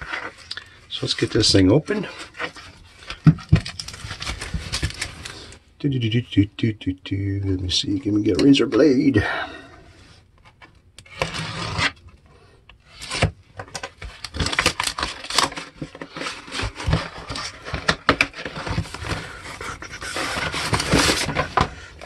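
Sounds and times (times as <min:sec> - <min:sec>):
cardboard tearing and crackling: 0:12.9 - 0:21.8.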